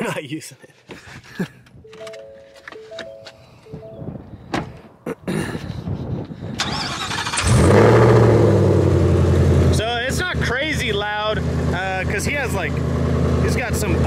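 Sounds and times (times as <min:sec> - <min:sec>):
dashboard chimes: 0:01.8 - 0:04.5.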